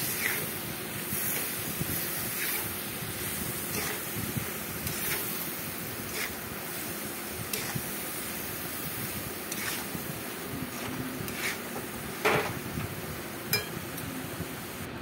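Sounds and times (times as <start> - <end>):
steady hiss: 0.0 - 15.0
metal spatula scraping a metal pan: 2.3 - 2.7, 3.6 - 4.2, 4.8 - 6.4, 7.5 - 7.8, 9.4 - 10.0, 10.7 - 11.7.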